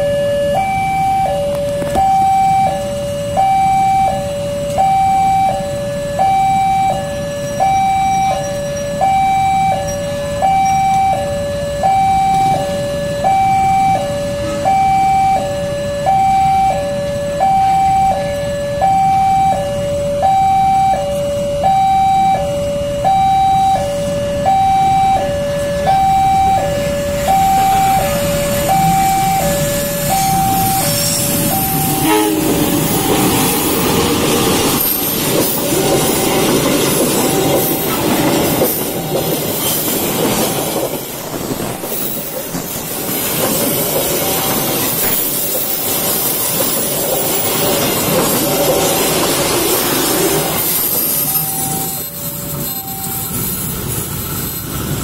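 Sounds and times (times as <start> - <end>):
two-tone electronic alarm: 0.0 - 53.6
train wheels clattering on rails: 26.6 - 55.0.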